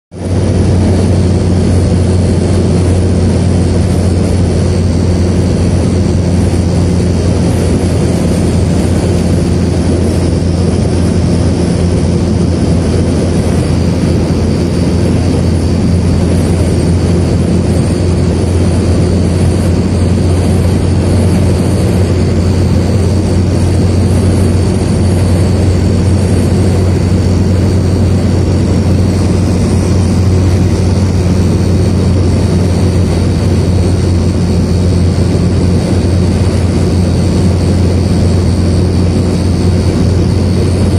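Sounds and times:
car cabin road and wind drone: 0:00.1 - 0:40.9.

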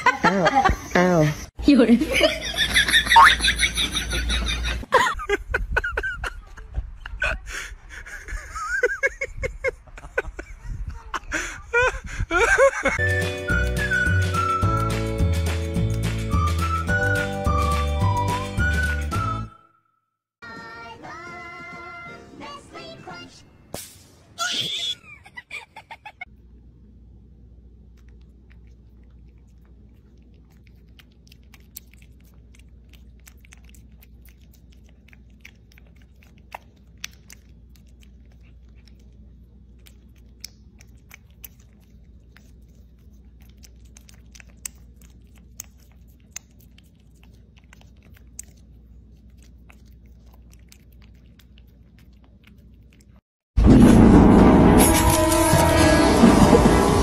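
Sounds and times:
low room hum: 0:25.0 - 0:57.0
cat licking: 0:27.8 - 0:53.2.

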